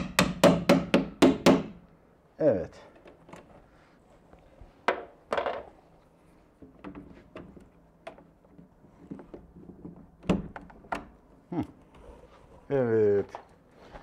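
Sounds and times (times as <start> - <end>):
hard knocks on window frame: 0.0 - 1.8.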